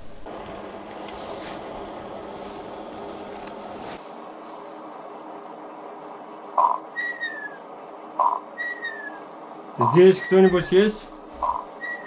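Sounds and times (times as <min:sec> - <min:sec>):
microphone hiss: 0:00.0 - 0:06.8, 0:09.2 - 0:11.8
faint rustles: 0:00.3 - 0:05.2.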